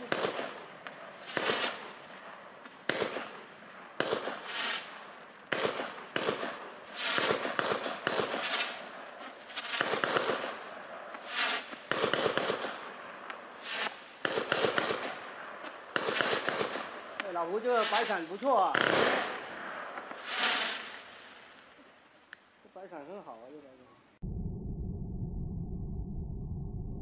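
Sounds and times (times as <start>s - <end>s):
firework cake shots: 0.0s - 2.0s, 5.5s - 22.4s
star bursts hissing: 17.6s - 18.3s, 20.1s - 21.5s.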